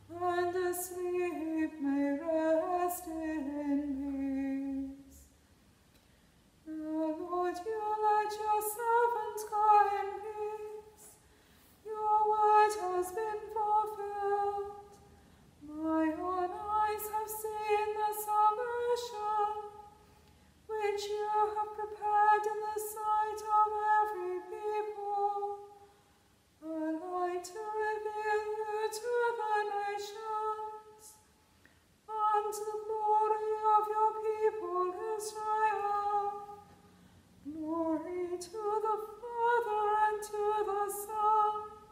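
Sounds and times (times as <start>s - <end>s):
woman breathing: 11.2s - 11.8s.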